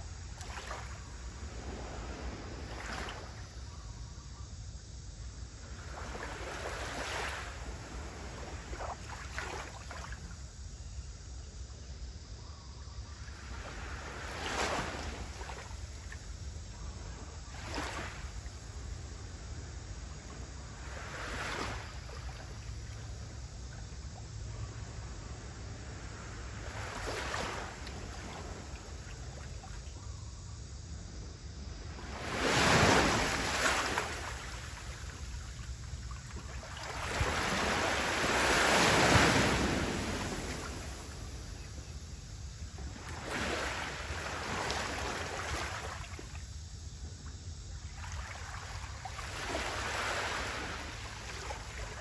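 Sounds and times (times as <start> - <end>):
small waves lapping at shore: 0.0 - 4.2, 5.3 - 11.0, 13.1 - 30.6, 31.6 - 52.0
wind rumble on microphone: 0.0 - 47.9.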